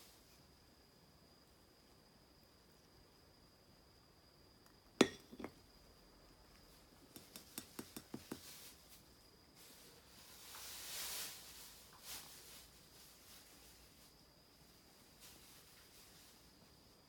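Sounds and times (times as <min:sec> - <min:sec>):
light clicks of bowl handled: 0:07.1 - 0:08.5
soft rustle: 0:08.2 - 0:17.0.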